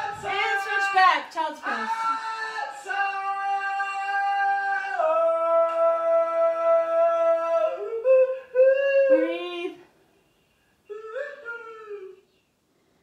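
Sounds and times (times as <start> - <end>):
woman singing long notes: 7.6 - 9.9.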